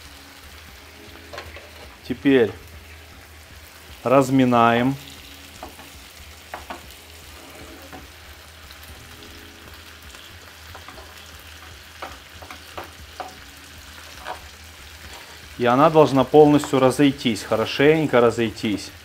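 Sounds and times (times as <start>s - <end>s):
stew sizzling in a frying pan: 0.0s - 19.0s
utensils scraping a pan: 1.3s - 2.0s, 6.6s - 8.2s, 14.0s - 15.6s.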